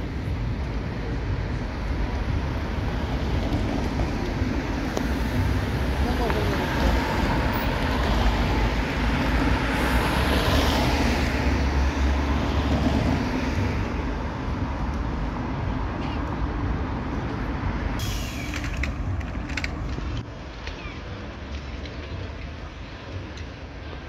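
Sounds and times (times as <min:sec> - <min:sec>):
city traffic noise: 0:00.0 - 0:24.0
tram rumbling on rails: 0:00.0 - 0:24.0
sharp clicks and rattles: 0:18.4 - 0:20.8.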